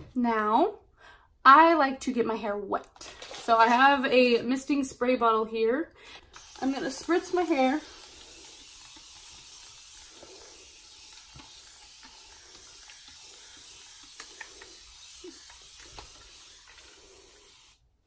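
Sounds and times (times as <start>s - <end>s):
spray bottle hissing: 6.3s - 17.9s.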